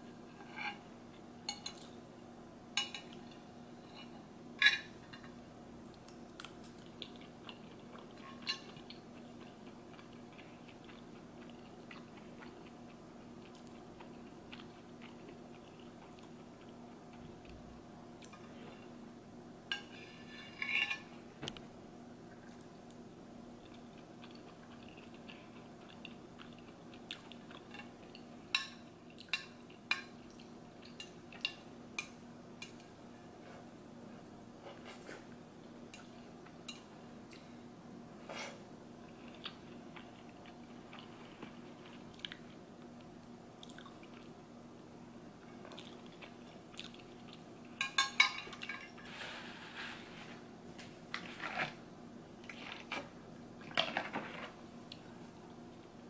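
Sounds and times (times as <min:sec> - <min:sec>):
chewing and mouth sounds: 0:23.6 - 0:28.3, 0:39.1 - 0:42.6, 0:43.6 - 0:44.3, 0:45.5 - 0:47.8.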